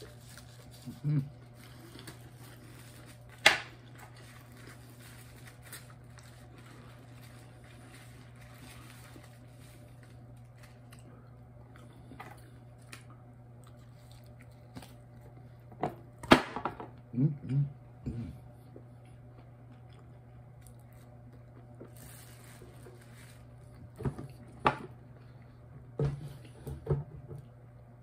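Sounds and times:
crunching chip: 0.0s - 11.1s
quiet chewing: 6.0s - 15.7s, 18.6s - 23.0s.

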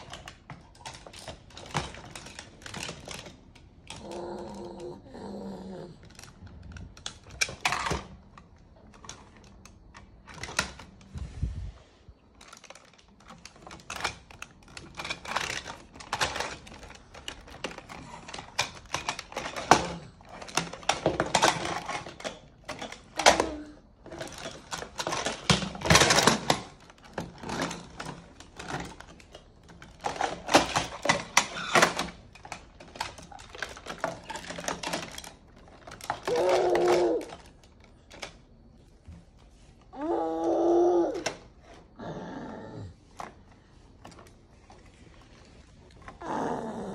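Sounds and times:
plastic toys clicking on stone: 0.0s - 11.1s, 12.4s - 38.8s.

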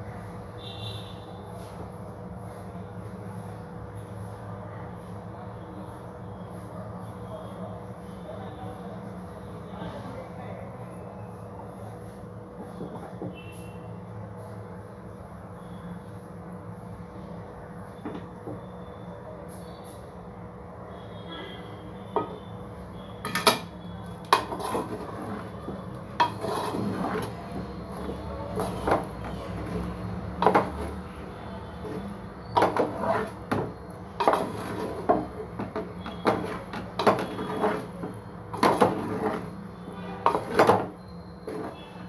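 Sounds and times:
wooden spatula scraping pot: 23.2s - 42.0s.

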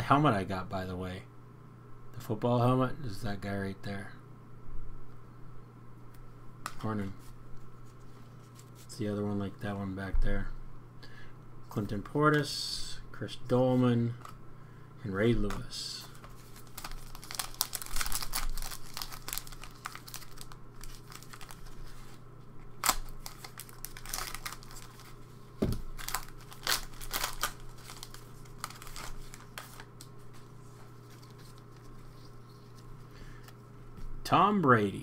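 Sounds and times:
plastic wrapper tearing and crinkling: 16.0s - 22.1s, 22.7s - 30.2s.

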